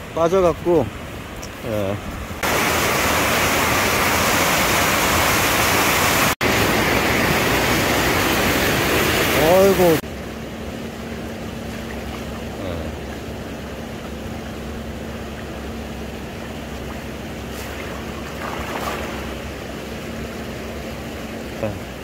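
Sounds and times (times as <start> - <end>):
shallow sea water washing: 2.2 - 21.2
steady low hum: 6.4 - 22.0.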